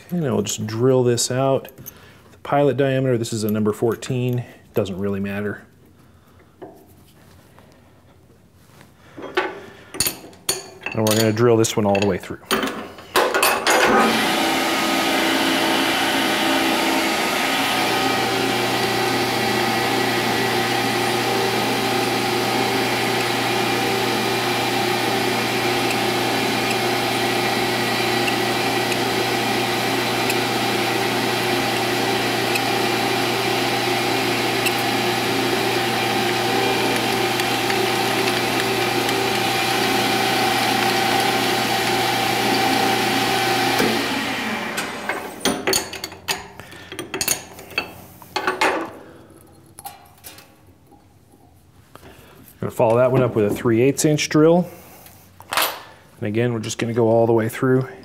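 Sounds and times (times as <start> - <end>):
metal lathe motor and gear hum: 13.8 - 45.5.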